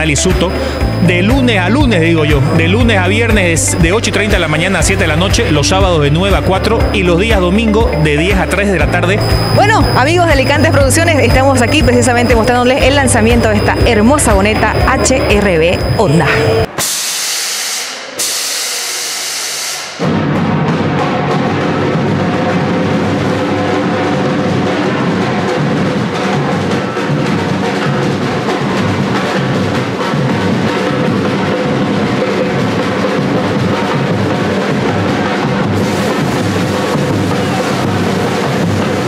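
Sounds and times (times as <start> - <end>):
music with drum beat: 0.0 - 16.3, 20.0 - 39.0
hissing bursts: 15.7 - 20.0, 35.6 - 39.0.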